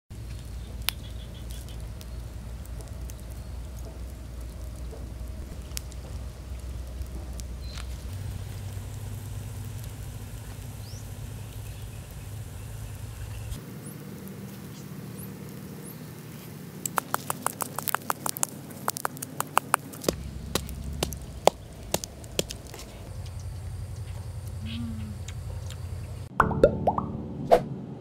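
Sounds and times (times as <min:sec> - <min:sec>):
low steady hum: 0:18.0 - 0:28.0.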